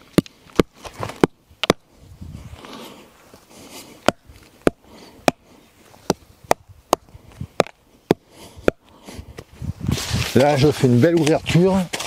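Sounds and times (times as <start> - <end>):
hatchet chopping into earth: 0.1 - 1.9, 4.0 - 5.4, 6.0 - 8.8.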